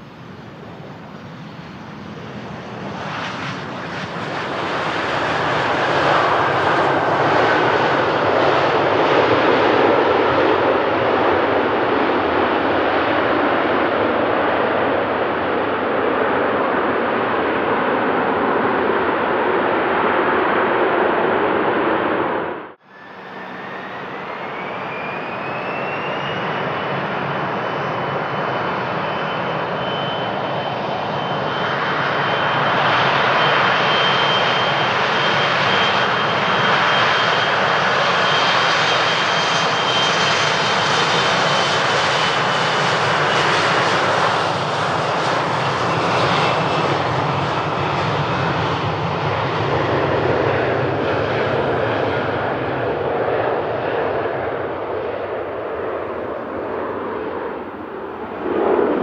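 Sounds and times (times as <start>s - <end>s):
jet engines spooling up: 18.2s - 59.0s.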